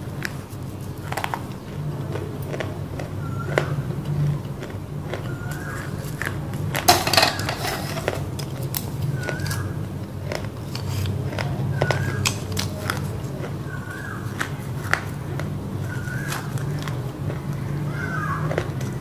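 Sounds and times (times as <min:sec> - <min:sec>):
roasted clay crunching: 0:00.0 - 0:19.0
loud crack of biting: 0:07.8 - 0:13.6, 0:14.2 - 0:17.6.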